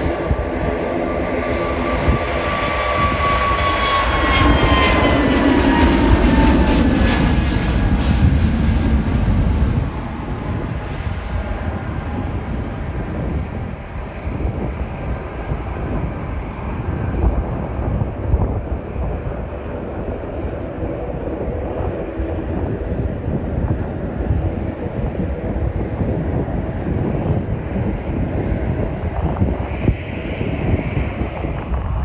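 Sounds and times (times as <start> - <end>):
jet engines rumbling: 0.0 - 32.0.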